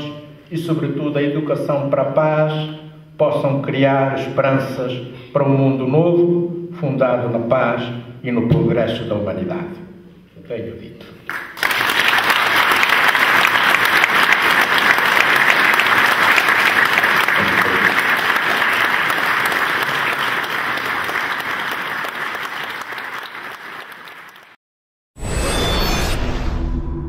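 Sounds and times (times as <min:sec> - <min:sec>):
audience applauding: 0:11.3 - 0:24.6.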